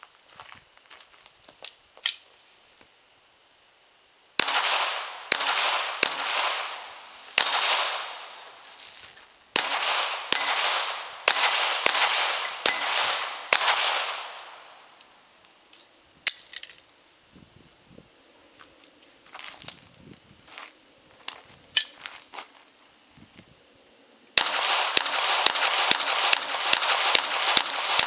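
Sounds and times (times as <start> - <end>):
pistol shots echoing: 4.4 - 8.6, 9.6 - 14.9, 24.4 - 28.0.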